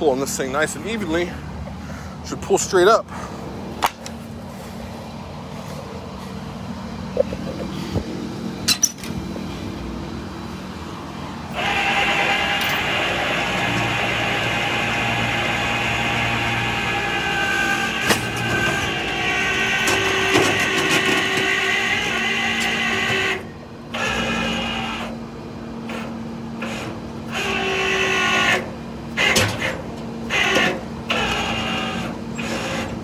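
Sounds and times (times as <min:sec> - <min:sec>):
truck engine humming: 0:00.0 - 0:33.0
winch whining: 0:11.4 - 0:25.2, 0:25.8 - 0:33.0.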